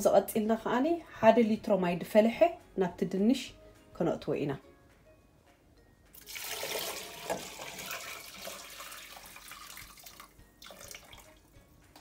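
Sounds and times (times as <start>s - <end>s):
water pouring into a pot: 6.2s - 11.6s.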